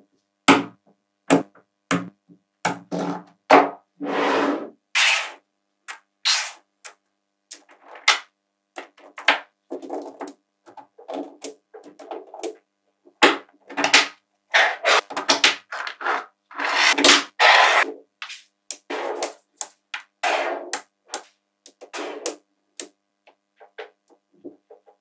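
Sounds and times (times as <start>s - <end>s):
magnetic balls clicking and clattering: 6.8s - 14.2s.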